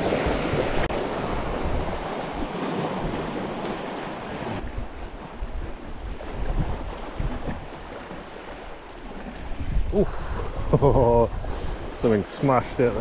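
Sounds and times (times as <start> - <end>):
sea washing against rocks: 0.0 - 10.2
wind rumbling on microphone: 0.0 - 13.0.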